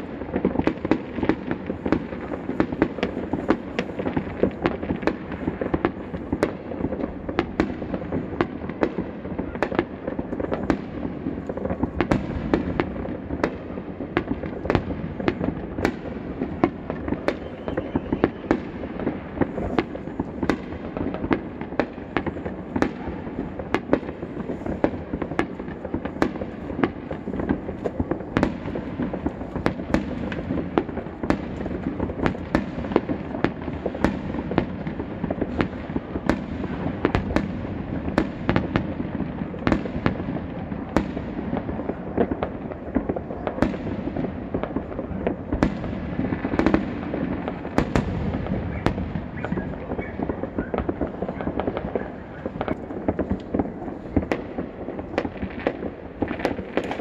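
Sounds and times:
fireworks bursting: 0.0 - 57.0.

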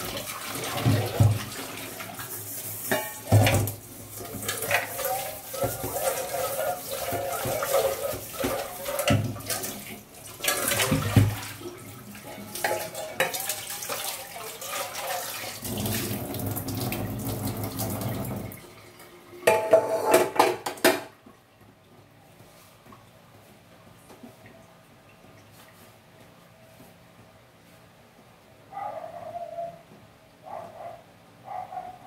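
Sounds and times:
tap water running into sink: 0.0 - 21.1
dishes clattering: 2.8 - 9.7, 12.5 - 13.6, 19.4 - 21.2.

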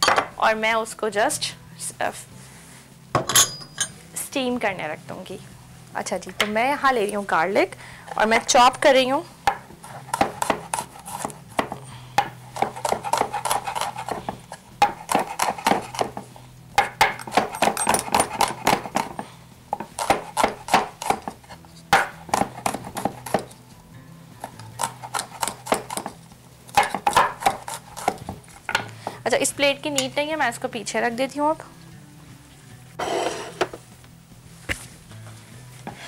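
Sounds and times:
knife chopping on wooden board: 9.5 - 16.2, 16.8 - 19.2, 19.8 - 23.6, 24.8 - 28.9.

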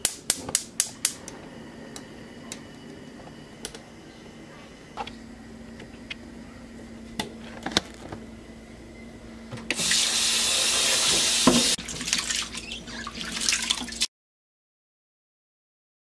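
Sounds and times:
hands splashing water: 11.8 - 14.0.

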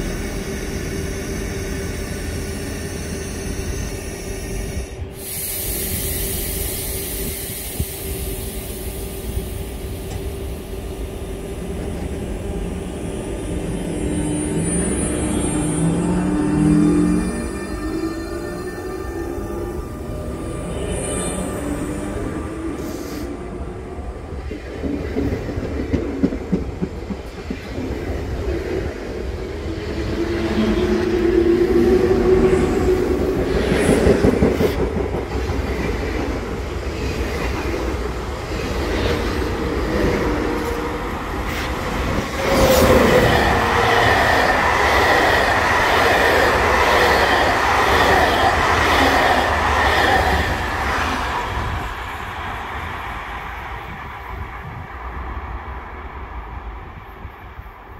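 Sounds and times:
passing train high-pitched whine: 0.0 - 57.9
train wheels rushing: 13.4 - 55.3.

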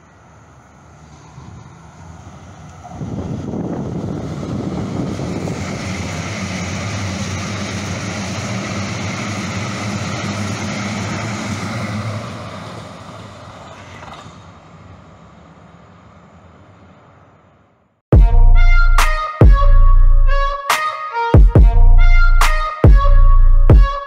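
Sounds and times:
train wheels rumbling on rail: 0.0 - 17.6.

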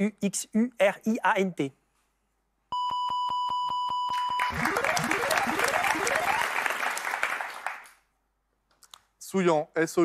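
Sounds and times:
applause: 4.1 - 8.1
rising tones sound effect: 4.4 - 6.8.

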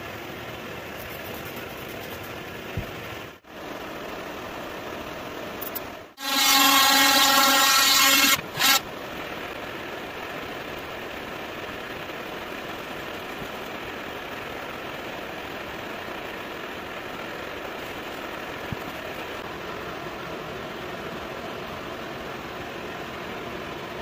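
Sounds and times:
shop hum: 0.0 - 20.0
power tool motor running: 6.2 - 8.9.

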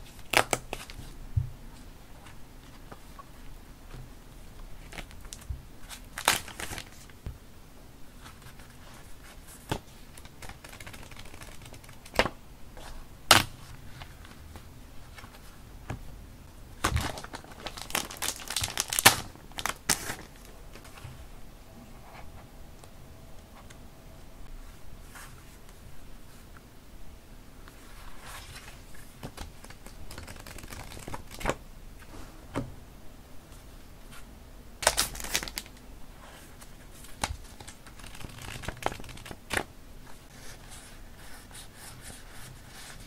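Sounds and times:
paper rustling and crinkling: 16.8 - 21.1, 27.7 - 32.2, 34.8 - 39.7.

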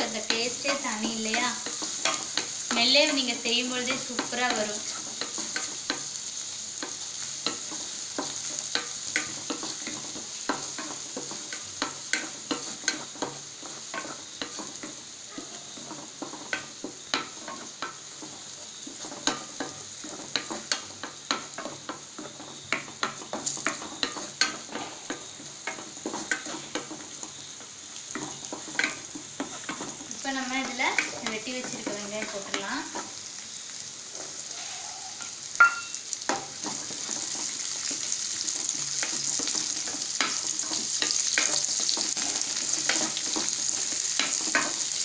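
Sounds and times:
garlic sizzling in hot oil: 0.0 - 45.0
wooden spatula scraping pan: 6.8 - 33.2, 36.3 - 45.0.

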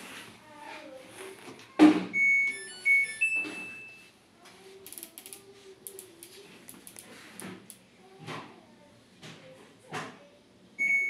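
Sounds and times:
faint clicks and taps: 4.4 - 8.5.

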